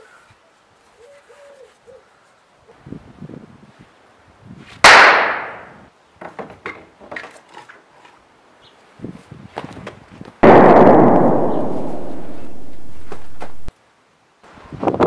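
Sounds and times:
loud gunshot: 0:04.9 - 0:05.7, 0:10.4 - 0:13.7.

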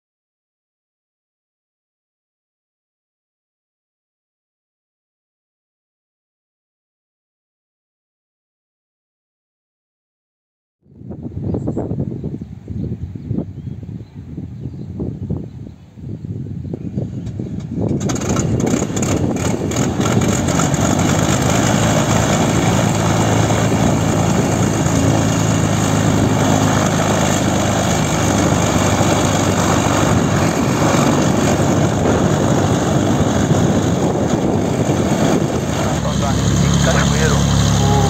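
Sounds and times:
aircraft engine starting and idling: 0:17.2 - 0:38.0.

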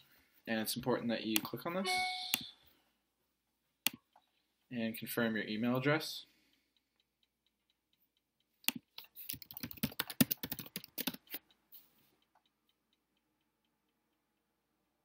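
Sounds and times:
typing on a computer keyboard: 0:08.7 - 0:11.4.

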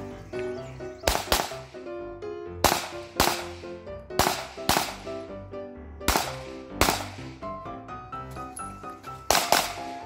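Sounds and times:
background music: 0:00.0 - 0:10.0
pistol shots: 0:01.0 - 0:01.7, 0:02.6 - 0:05.2, 0:06.1 - 0:07.3, 0:09.3 - 0:10.0.

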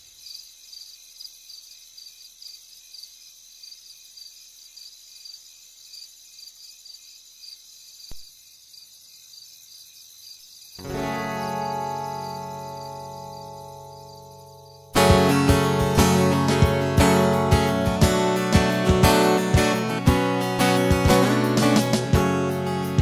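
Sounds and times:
crickets chirping: 0:00.0 - 0:15.0.

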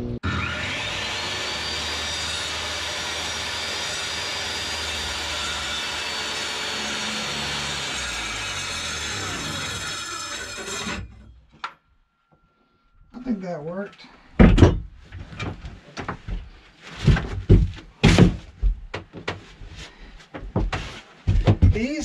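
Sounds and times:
oscillating multi-tool cutting wood: 0:00.2 - 0:11.4.

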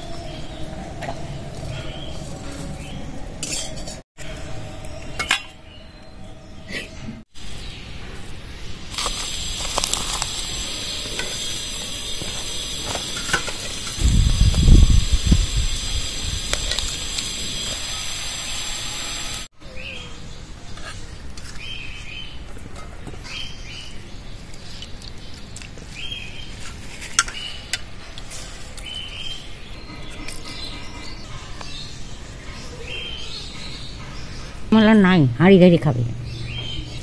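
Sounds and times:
bird chirping: 0:28.8 - 0:37.0.

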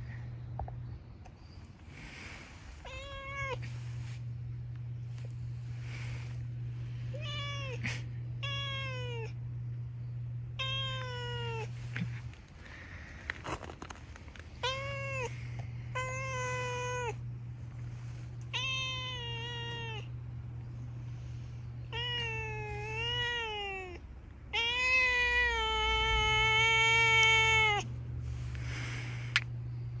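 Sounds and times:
low steady hum: 0:00.0 - 0:30.0
cat meowing: 0:02.9 - 0:03.6, 0:08.4 - 0:09.4, 0:10.6 - 0:11.7, 0:18.5 - 0:20.1, 0:21.9 - 0:27.8.

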